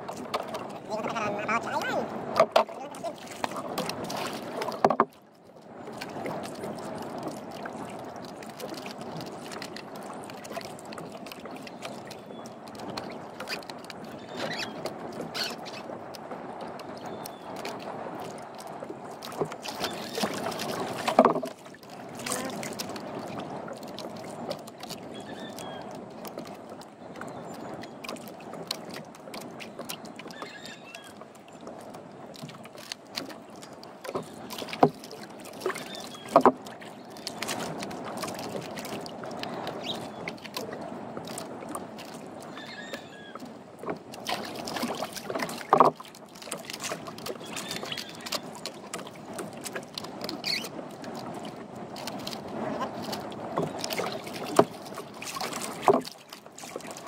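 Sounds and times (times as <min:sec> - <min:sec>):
water lapping against boat hull: 0:00.0 - 0:57.0
sharp knocks on hull: 0:02.3 - 0:02.8, 0:04.6 - 0:05.1, 0:20.2 - 0:21.6, 0:34.1 - 0:35.0, 0:45.7 - 0:46.0, 0:55.7 - 0:56.2.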